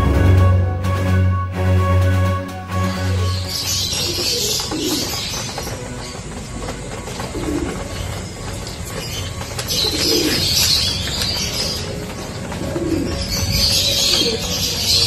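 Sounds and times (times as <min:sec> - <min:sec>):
pigeons cooing: 0:03.0 - 0:15.0.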